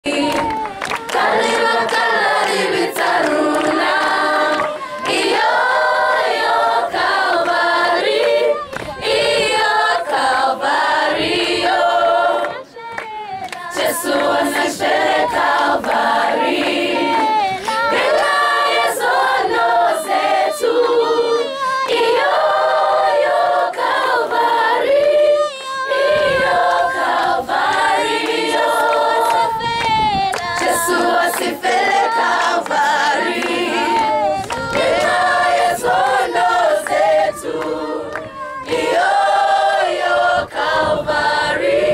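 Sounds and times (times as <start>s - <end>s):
choir singing unaccompanied: 0.0s - 41.9s.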